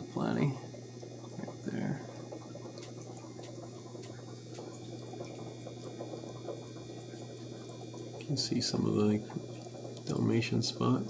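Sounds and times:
sponge filter bubbling: 0:00.0 - 0:11.0
water splashing and trickling: 0:00.3 - 0:11.0
small ticks: 0:01.0 - 0:08.4.

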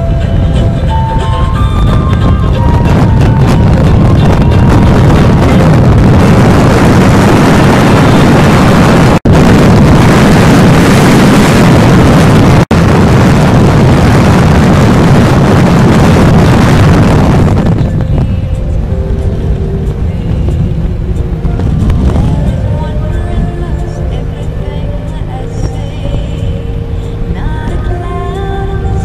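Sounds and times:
road noise: 0:00.0 - 0:29.0
wind buffeting microphone: 0:00.0 - 0:29.0.

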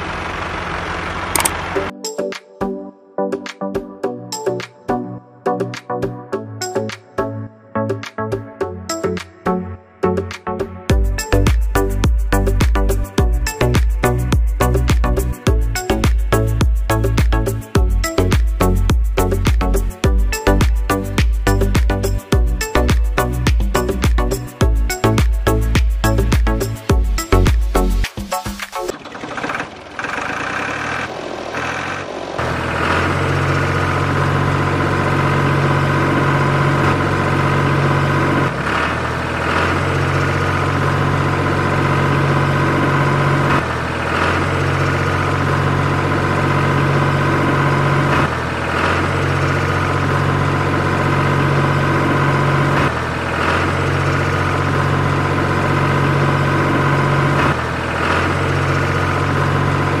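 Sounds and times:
steady engine-like drone: 0:00.0 - 0:01.9, 0:29.2 - 1:00.0.

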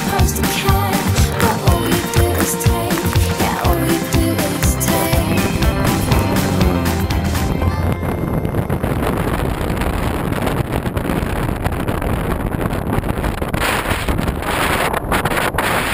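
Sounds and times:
wind buffeting microphone: 0:05.0 - 0:15.6.

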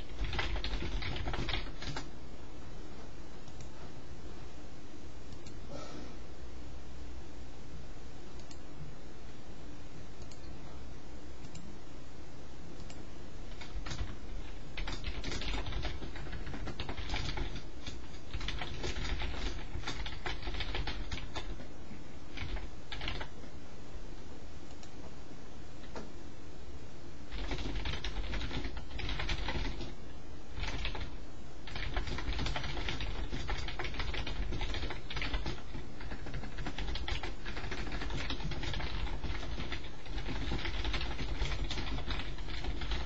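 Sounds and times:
keyboard typing: 0:00.0 - 0:02.1, 0:12.8 - 0:21.7, 0:22.3 - 0:23.5, 0:27.3 - 0:30.0, 0:30.6 - 0:43.0
background hum: 0:00.0 - 0:43.0.

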